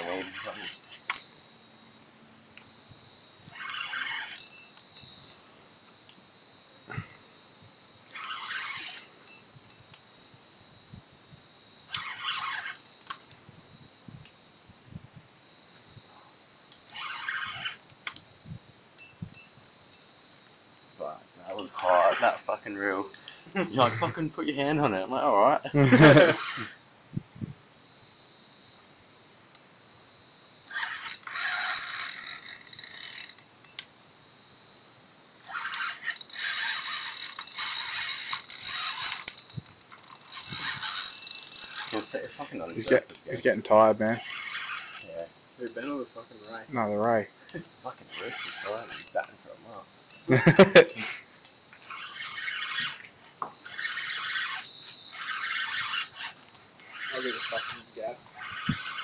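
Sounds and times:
fishing reel ratcheting whirr: 0.0 - 1.2, 3.4 - 5.4, 8.1 - 10.0, 11.9 - 13.6, 16.7 - 18.2, 21.4 - 22.9, 25.9 - 26.8, 30.7 - 33.9, 35.4 - 43.0, 44.2 - 46.6, 48.1 - 49.3, 50.1 - 59.0.

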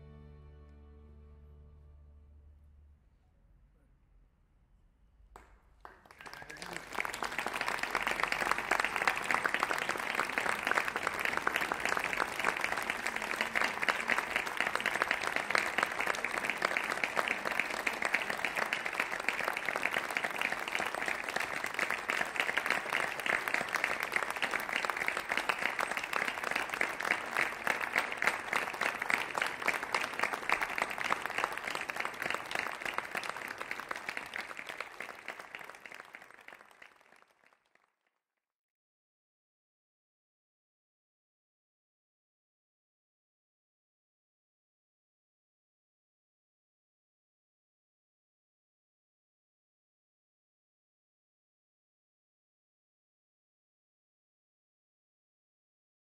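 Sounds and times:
audience applauding: 5.4 - 38.0.

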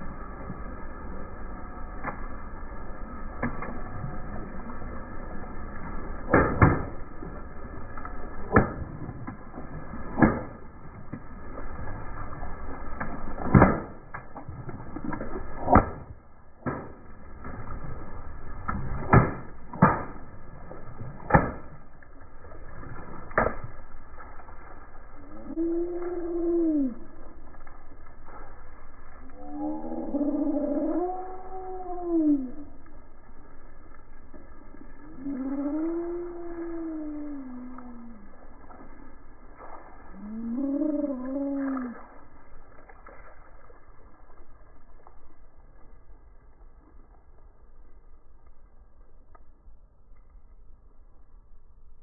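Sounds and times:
steady low background noise: 0.0 - 26.2, 26.8 - 40.5, 41.1 - 52.0.

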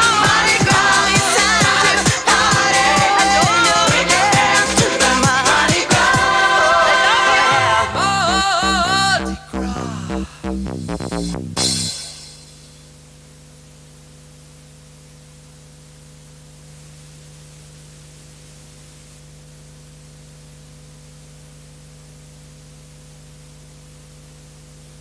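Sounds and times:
dance music: 0.0 - 12.4
low electrical hum: 0.0 - 25.0
steady tape hiss: 0.0 - 25.0.

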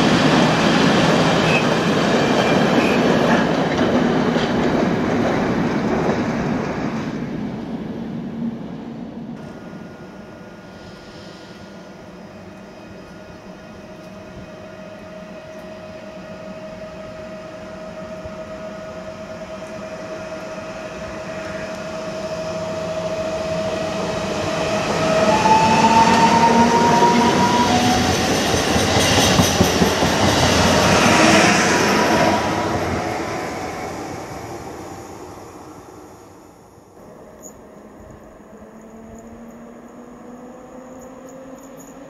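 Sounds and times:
train wheels rattling on rails: 0.0 - 7.3, 21.0 - 35.2
train electric whine: 9.4 - 42.0.

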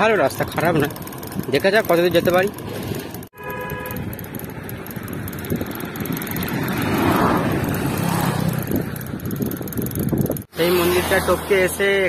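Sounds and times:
tyres on brick road: 0.0 - 12.0
wind on microphone: 5.0 - 10.5.

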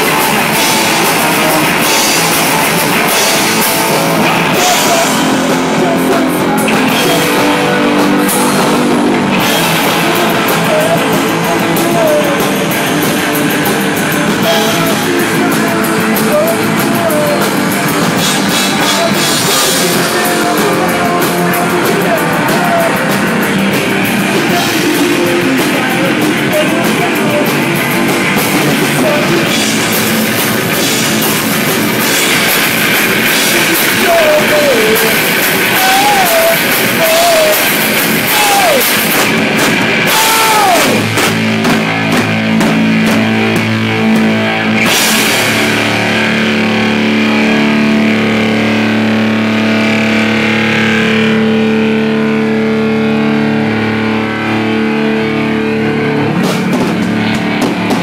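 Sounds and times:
drums with crashing cymbals: 0.0 - 48.6, 56.3 - 58.0
distorted electric guitar: 0.0 - 58.0.

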